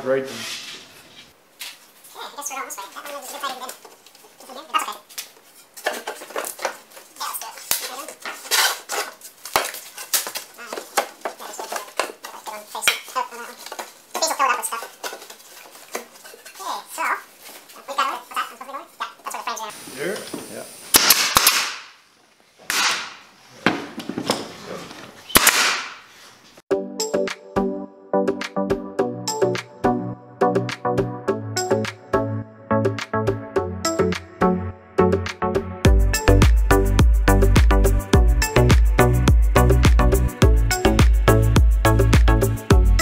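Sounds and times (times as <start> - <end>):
wooden panels knocking and scraping: 5.6 - 7.0, 23.6 - 25.2
pneumatic stapler shots: 20.9 - 22.0, 22.7 - 23.2, 25.3 - 26.0
music: 26.7 - 43.0.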